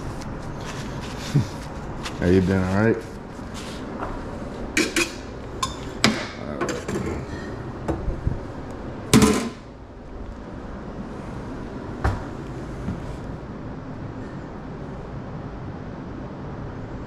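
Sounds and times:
steel lids clanking: 4.7s - 7.2s.

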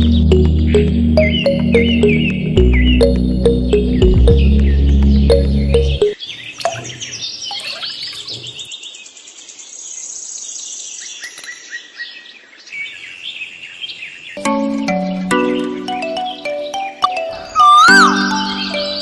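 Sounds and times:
birds chirping: 0.0s - 9.6s, 11.1s - 19.0s
fast high bird trill: 15.2s - 19.0s.

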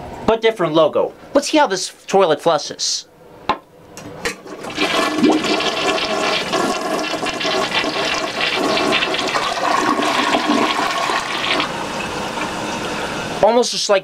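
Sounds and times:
toilet flushing: 4.3s - 13.4s.

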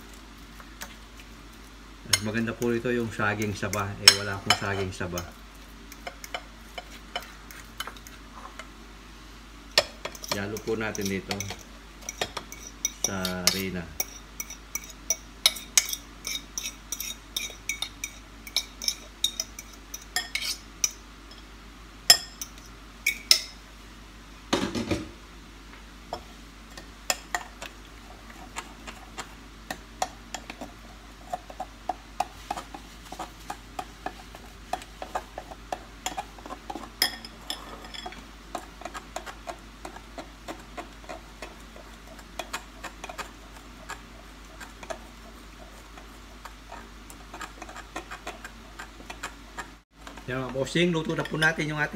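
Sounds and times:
utensil scraping glass bowl: 10.1s - 20.7s, 32.2s - 49.8s.

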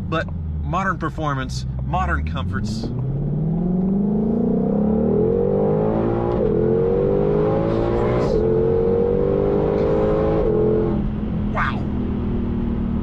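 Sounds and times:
car engine accelerating hard: 0.0s - 13.0s.

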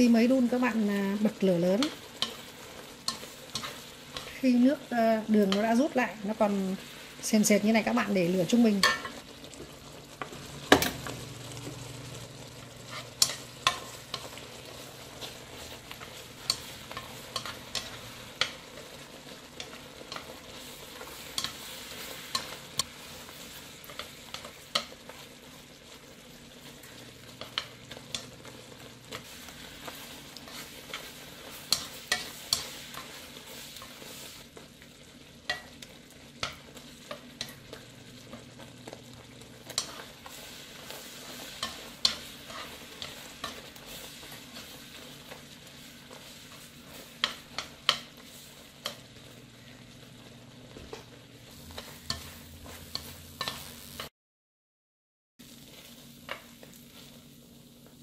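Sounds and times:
chopsticks clicking against pan: 13.2s - 14.4s, 16.4s - 18.6s, 41.6s - 43.6s, 47.2s - 48.2s.

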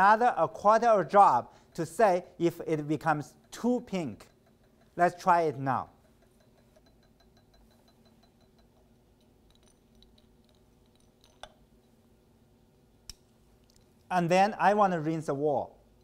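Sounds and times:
faint room hum: 0.0s - 16.0s
glassware clicks: 4.2s - 5.0s, 5.9s - 12.0s.

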